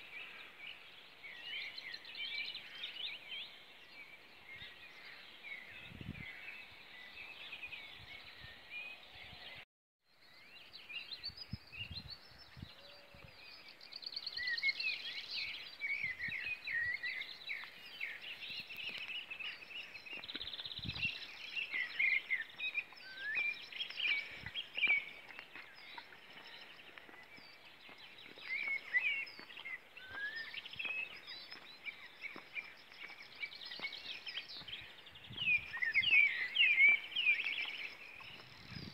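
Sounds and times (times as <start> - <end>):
songbirds singing: 0.0 - 38.9.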